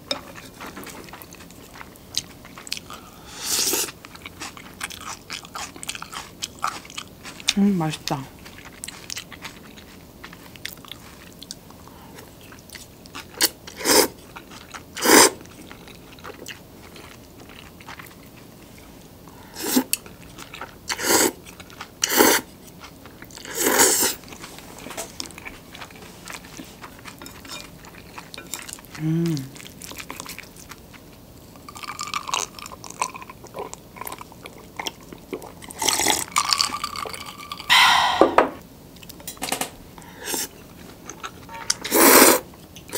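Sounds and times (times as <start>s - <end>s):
quiet chewing: 0.1s - 37.8s, 40.0s - 42.9s
loud noodle slurps: 13.8s - 14.2s, 15.0s - 15.4s, 22.1s - 22.5s, 23.5s - 24.2s, 41.8s - 42.4s.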